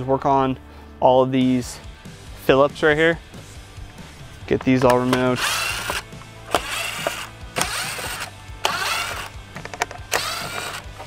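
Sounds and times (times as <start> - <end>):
cordless drill motor whirring: 5.1 - 11.0.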